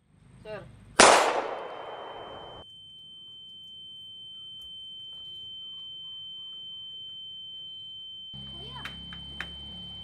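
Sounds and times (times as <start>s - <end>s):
gunshot: 1.0s - 2.6s
high-pitched ringing tone: 1.6s - 10.0s.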